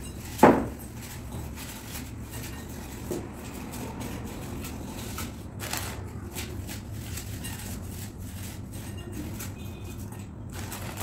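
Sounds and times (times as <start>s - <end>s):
dry biscuits crunching: 3.5s - 11.0s.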